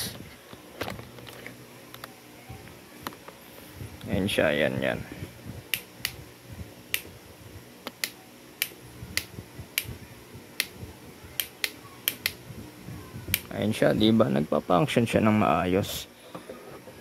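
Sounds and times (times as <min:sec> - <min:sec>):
sharp dry clicks: 0:07.8 - 0:09.9, 0:11.4 - 0:12.4.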